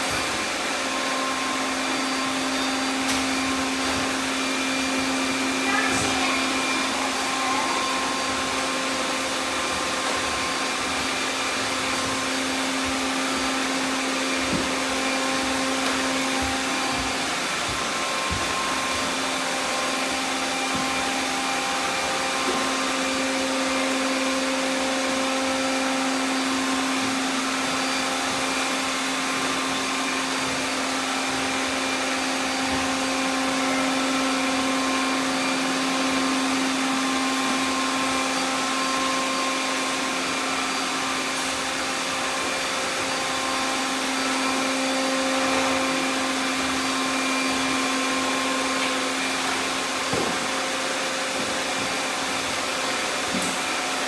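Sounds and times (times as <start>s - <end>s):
robot vacuums whirring: 0.0s - 54.0s.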